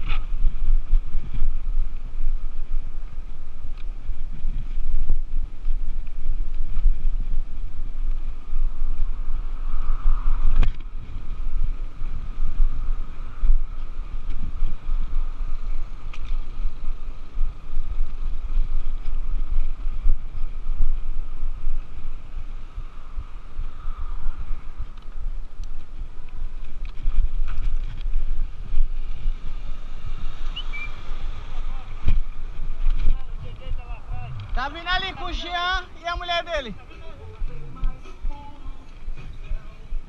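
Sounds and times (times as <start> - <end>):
faint bicycle riding noise: 0.0 - 40.0
wind buffeting microphone: 0.0 - 40.0.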